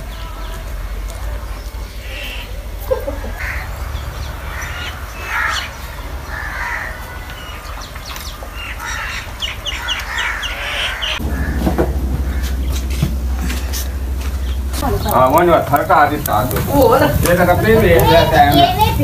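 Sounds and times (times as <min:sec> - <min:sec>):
crows cawing: 0:02.0 - 0:16.1.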